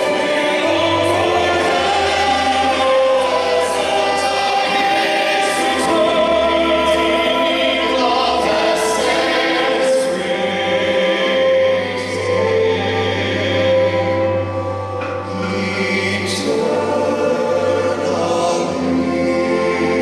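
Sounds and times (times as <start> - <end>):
children's choir singing a carol: 0.0 - 20.0
instrumental backing music: 0.0 - 20.0.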